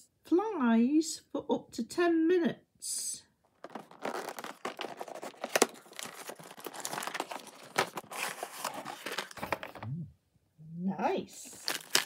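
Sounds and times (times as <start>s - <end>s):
cardboard rustling and scraping: 3.6s - 9.8s.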